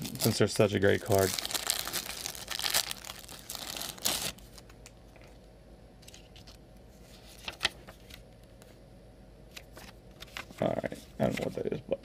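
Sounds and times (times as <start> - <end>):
plastic wrapper crinkling: 0.0 - 5.3.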